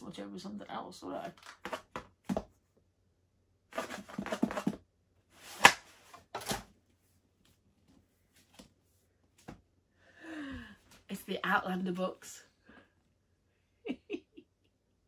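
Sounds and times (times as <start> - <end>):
cardboard rustling and crackling: 3.8 - 4.8
cardboard sharp snap: 5.5 - 6.6.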